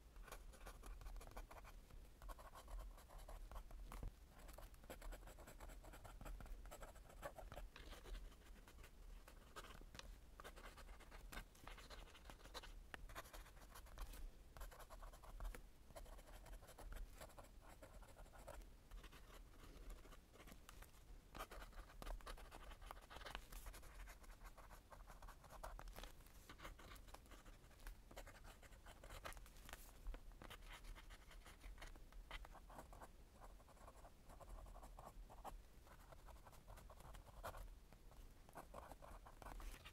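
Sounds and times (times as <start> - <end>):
fountain pen scratching on paper: 0.2 - 3.7, 4.4 - 9.8, 10.4 - 20.6, 21.3 - 25.9, 26.5 - 29.4, 30.4 - 37.6, 38.5 - 39.9.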